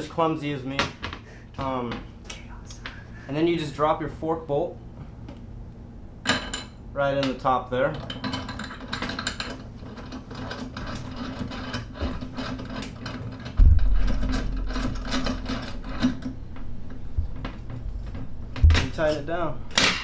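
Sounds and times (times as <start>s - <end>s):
low thump: 13.6s - 14.1s.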